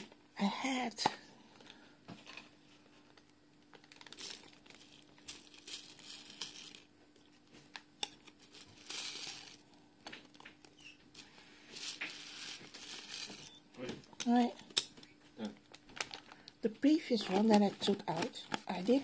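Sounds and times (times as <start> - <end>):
beads rustling: 3.8 - 6.9, 8.2 - 9.7, 10.4 - 13.6.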